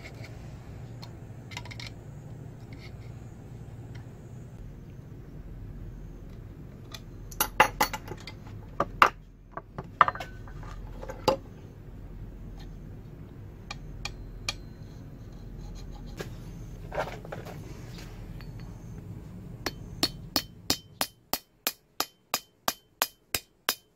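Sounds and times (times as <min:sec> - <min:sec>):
metal tools clinking on wood: 0:07.3 - 0:08.4, 0:10.0 - 0:11.4.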